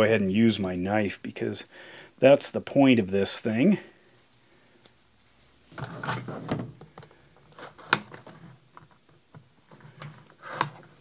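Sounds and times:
cardboard scraping and rustling: 0:05.7 - 0:06.8, 0:07.5 - 0:08.6, 0:09.7 - 0:11.0.

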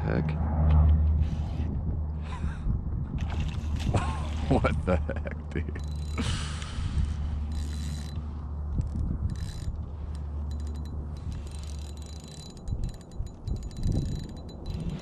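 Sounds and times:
fishing reel whirring: 0:05.8 - 0:15.0.

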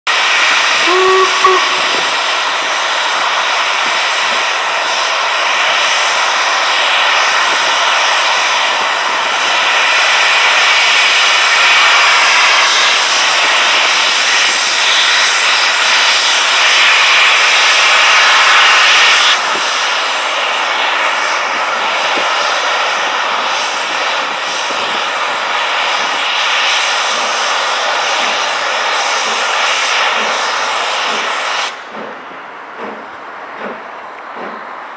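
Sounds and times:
steam hissing: 0:00.1 - 0:34.9
steam locomotive pulling away: 0:00.1 - 0:34.9
steam whistle toot: 0:00.6 - 0:02.3.

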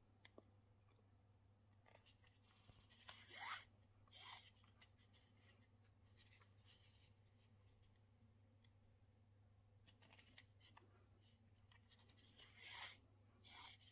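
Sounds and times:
needle scratching on thread: 0:11.8 - 0:13.9.

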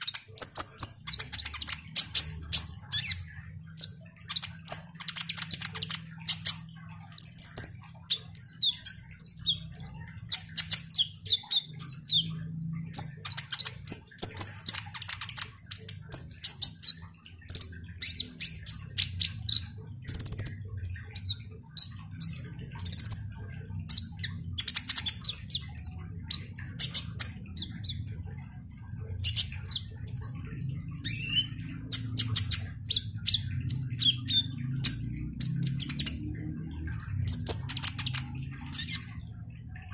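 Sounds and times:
sunbird chattering song: 0:07.2 - 0:28.1, 0:31.0 - 0:36.3.

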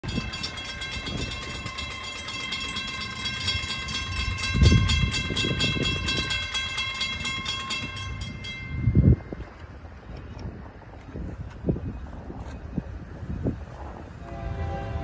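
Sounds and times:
crossing warning bell ringing: 0:00.0 - 0:09.6, 0:14.1 - 0:15.0.

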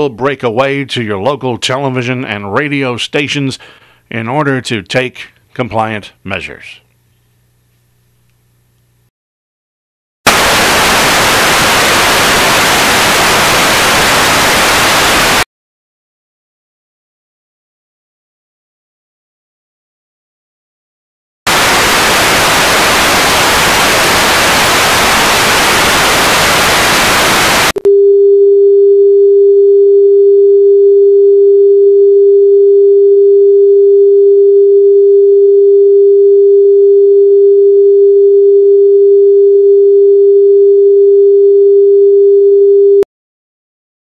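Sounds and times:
loud steady test tone: 0:10.3 - 0:15.4, 0:21.5 - 0:27.8
television static hiss: 0:10.3 - 0:15.4, 0:21.5 - 0:27.8.

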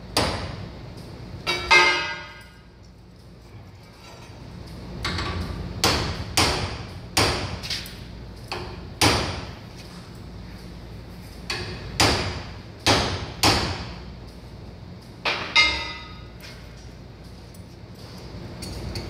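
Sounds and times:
hammer striking metal spike: 0:01.5 - 0:02.6, 0:05.1 - 0:07.8, 0:08.5 - 0:09.5, 0:11.5 - 0:14.0.

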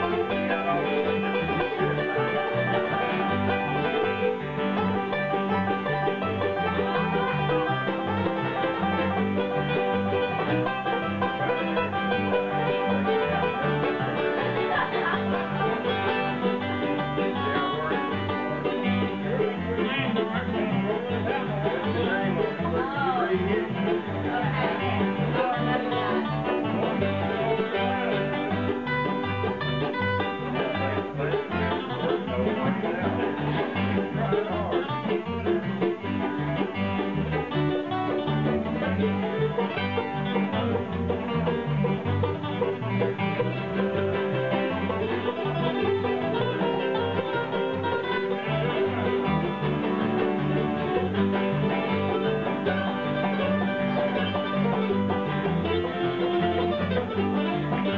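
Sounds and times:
acoustic guitar: 0:00.0 - 0:57.9
electric bass: 0:00.0 - 0:57.9
mandolin: 0:00.0 - 0:57.9.

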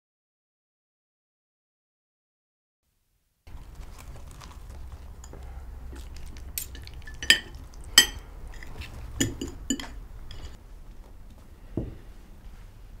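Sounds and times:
low steady hum: 0:03.5 - 0:13.0
cutlery and dishes clinking: 0:05.0 - 0:10.6.

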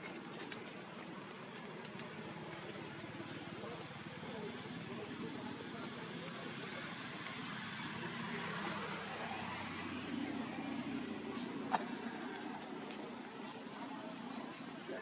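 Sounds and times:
faint high chirps: 0:00.0 - 0:01.4, 0:09.3 - 0:14.1
constant high whine: 0:00.0 - 0:15.0
outdoor background noise: 0:00.0 - 0:15.0.

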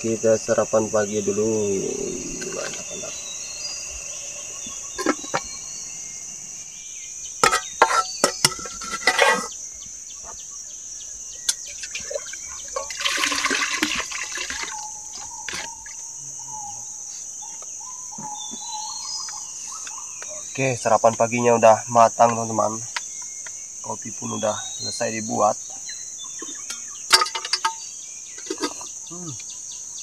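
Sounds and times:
bird chirps: 0:00.0 - 0:13.0, 0:13.6 - 0:30.0
insects chirring: 0:00.0 - 0:30.0
spoon knocking metal pot: 0:04.9 - 0:05.5, 0:07.4 - 0:09.5.

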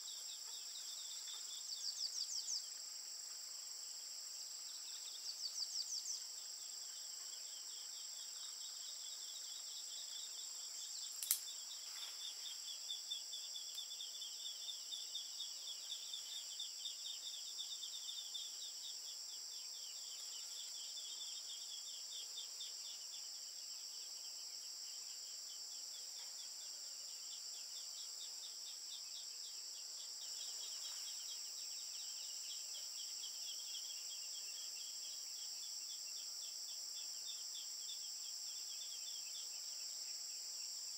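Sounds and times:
insects shrilling: 0:08.6 - 0:18.3
sharp click: 0:11.2 - 0:11.5.

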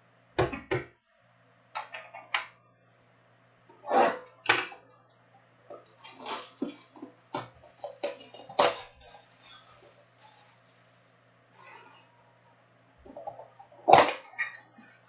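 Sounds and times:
plastic shrink-wrap crackling and tearing: 0:06.0 - 0:06.8.

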